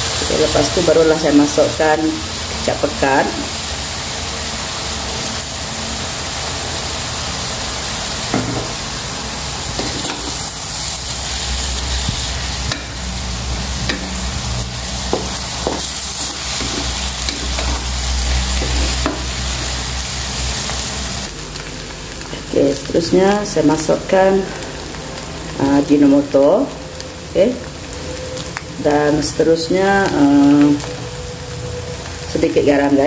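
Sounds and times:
noodles sizzling in a wok: 0.0s - 33.0s
spatula scraping a pan: 15.1s - 19.7s.

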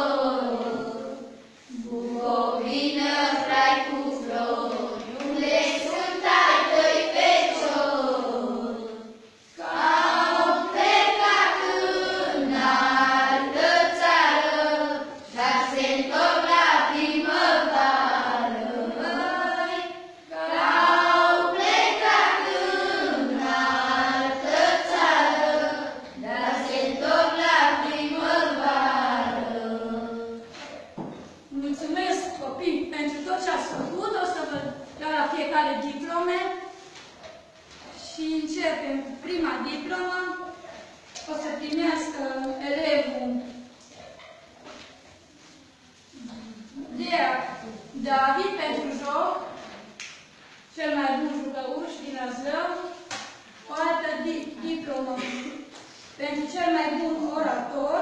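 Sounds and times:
girls singing folk song: 0.0s - 36.0s.

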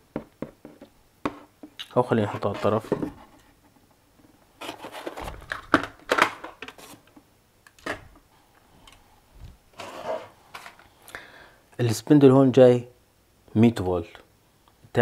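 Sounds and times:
cardboard and foam rustling: 4.6s - 7.1s.

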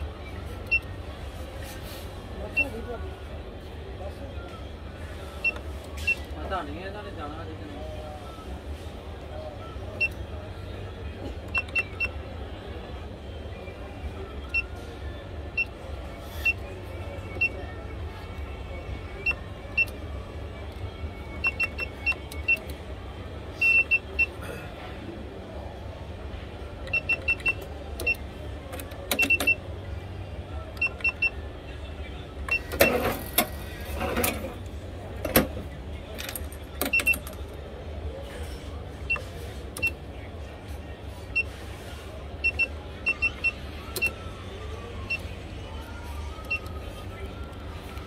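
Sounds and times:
cash register keypad beeps: 11.5s - 12.2s, 21.4s - 22.8s, 23.6s - 24.4s, 26.9s - 29.6s, 30.8s - 31.4s, 32.5s - 34.6s, 36.7s - 37.4s, 42.4s - 44.2s.

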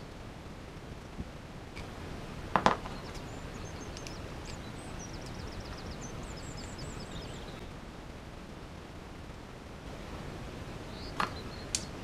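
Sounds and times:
bird chirping and trilling: 2.8s - 7.7s, 10.8s - 12.0s.

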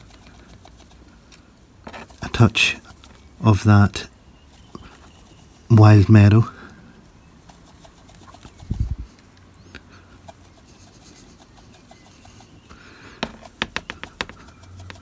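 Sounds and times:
grass applicator faint ticking: 4.5s - 15.0s
sharp taps: 13.2s - 15.0s.

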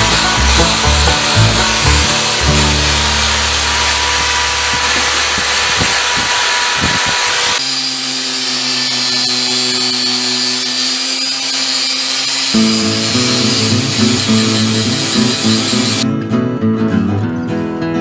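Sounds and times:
angle grinder on steel: 0.0s - 16.0s
drill wire wheel scrubbing metal: 0.0s - 16.0s.

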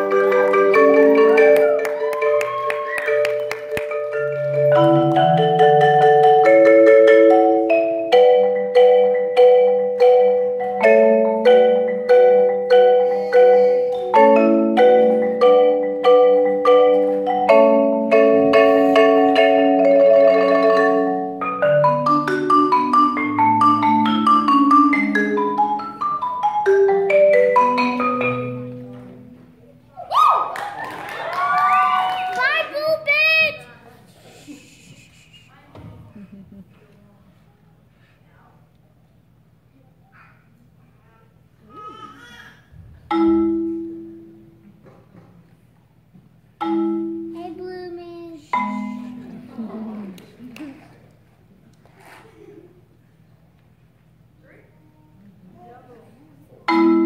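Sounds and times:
marimba played with mallets: 0.0s - 29.5s, 43.0s - 44.8s, 46.6s - 47.6s, 48.5s - 50.2s, 56.6s - 57.0s.

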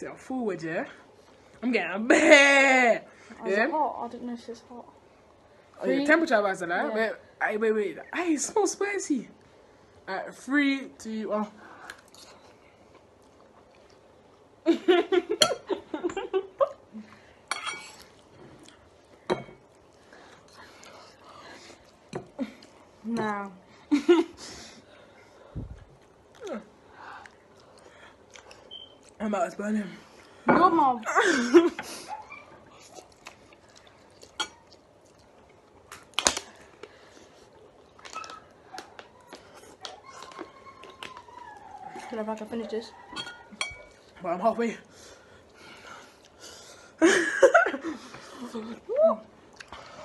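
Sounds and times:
forks clinking on ceramic bowls: 17.5s - 18.0s, 43.1s - 44.0s.

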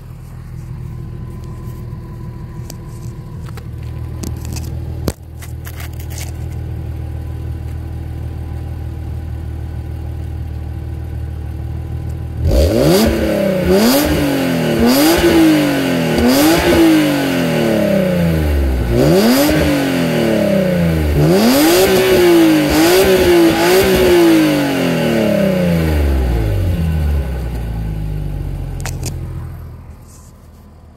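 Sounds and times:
car engine revving: 12.2s - 30.6s.

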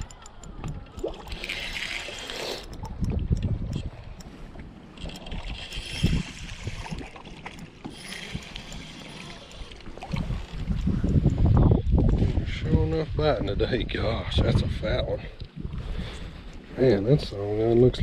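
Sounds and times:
fishing reel whirring: 0.0s - 11.8s
wind buffeting microphone: 2.6s - 7.2s, 7.9s - 18.0s.

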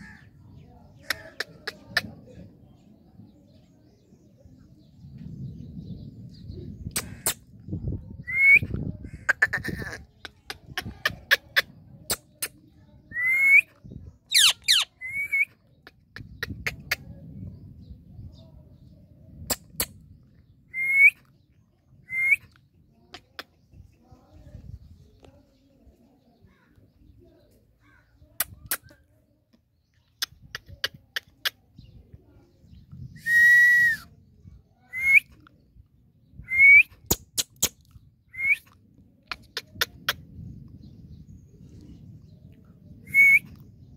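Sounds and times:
parakeet whistled calls: 14.3s - 15.4s
parrot chirps: 14.3s - 15.4s
parrot whistles: 43.1s - 43.5s.

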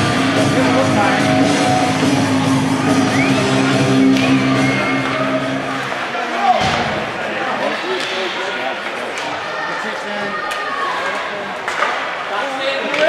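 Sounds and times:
music with long low notes: 0.0s - 5.9s.

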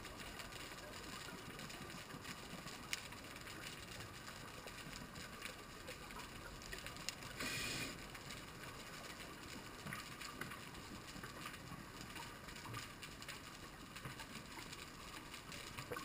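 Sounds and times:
underwater crackle of clicks: 0.0s - 16.0s.

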